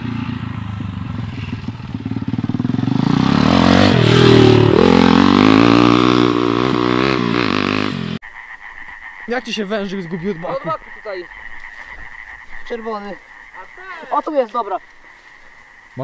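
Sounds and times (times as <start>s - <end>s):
pit bike engine revving: 0.0s - 8.2s.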